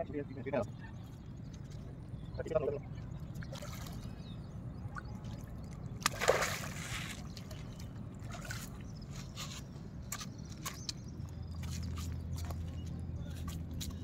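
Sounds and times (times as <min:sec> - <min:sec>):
water sloshing and trickling: 0:00.5 - 0:14.0
water splash: 0:06.0 - 0:07.2.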